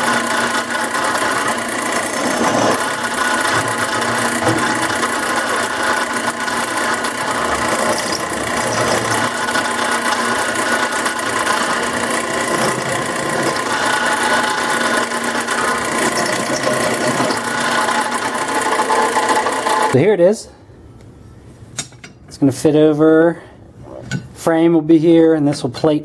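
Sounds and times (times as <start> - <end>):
drill press chamfering steel: 0.0 - 20.0.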